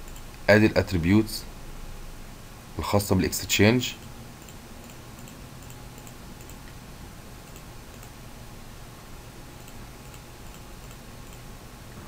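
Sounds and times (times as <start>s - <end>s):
computer mouse clicks: 0.0s - 0.4s, 4.0s - 6.8s, 7.4s - 8.2s, 9.6s - 11.5s
background hum and hiss: 0.0s - 12.0s.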